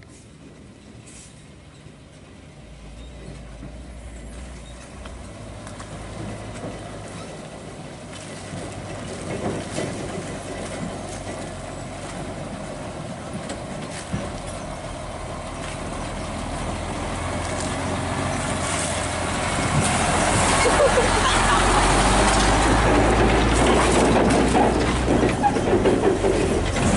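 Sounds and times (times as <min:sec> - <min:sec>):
diesel truck engine running: 0:00.0 - 0:26.9.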